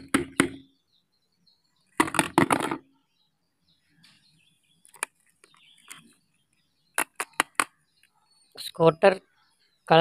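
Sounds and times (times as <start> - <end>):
plastic toys rustling and knocking: 1.9 - 2.9, 7.0 - 7.7.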